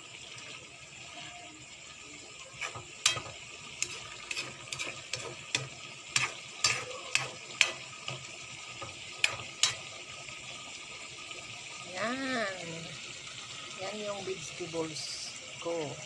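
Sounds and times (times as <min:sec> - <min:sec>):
food sizzling: 0:00.0 - 0:16.0
spatula knocking on wok: 0:02.6 - 0:09.9.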